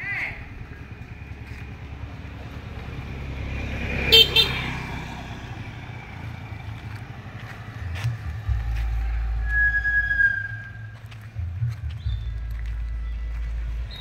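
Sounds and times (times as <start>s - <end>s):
vehicle engine passing: 0.1s - 14.0s
car horn toots: 4.0s - 4.7s
low rumble: 5.6s - 14.0s.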